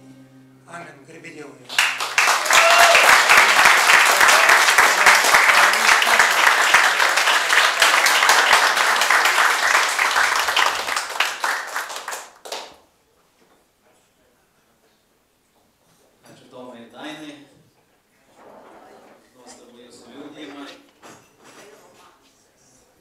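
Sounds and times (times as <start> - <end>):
audience applauding: 1.7 - 12.8.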